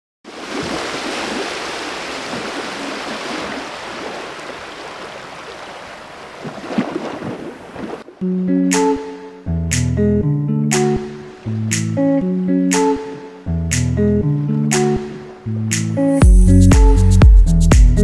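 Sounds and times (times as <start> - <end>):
surf washing onto beach: 0.3 - 8.2
plucked guitar music: 8.1 - 18.0.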